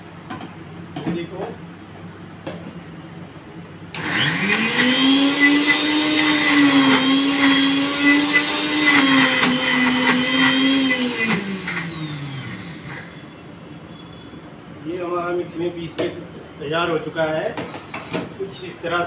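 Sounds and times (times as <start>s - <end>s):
mixer grinder motor whining: 3.9s - 13.4s.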